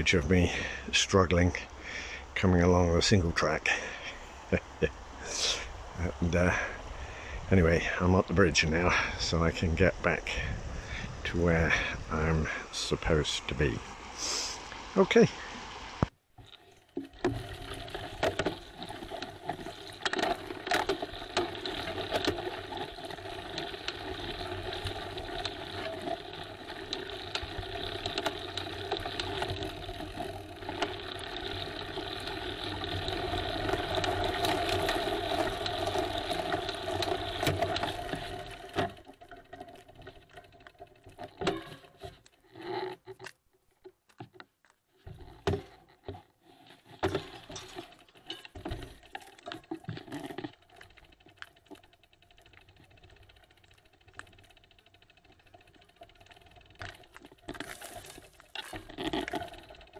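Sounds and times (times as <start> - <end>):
bicycle tyre rumble: 0.0 - 2.4, 3.0 - 43.3, 44.9 - 59.9
bike rattling and clicking: 16.4 - 59.9.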